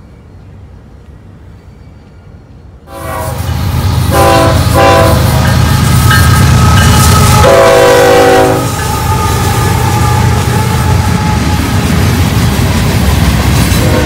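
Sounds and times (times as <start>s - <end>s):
rumble of engines and wheels: 0.0s - 14.0s
locomotive air horn blasts: 2.9s - 5.6s, 6.5s - 11.7s, 13.8s - 14.0s.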